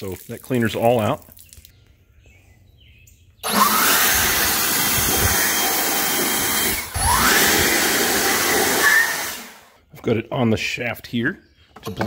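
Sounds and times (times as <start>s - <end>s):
leaf blower blowing air: 3.4s - 9.8s.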